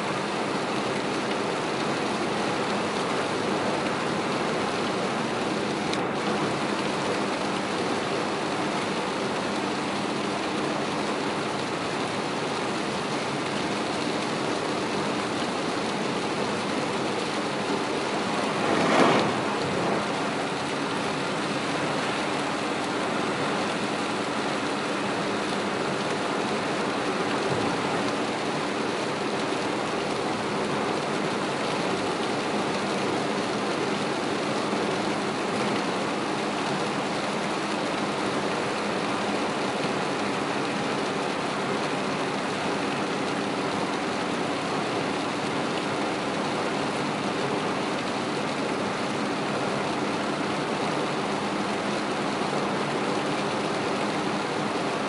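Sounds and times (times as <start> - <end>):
heavy rain on car roof: 0.0 - 55.0
tyres hissing on wet road: 0.0 - 55.0
brief whoosh: 18.0 - 21.2.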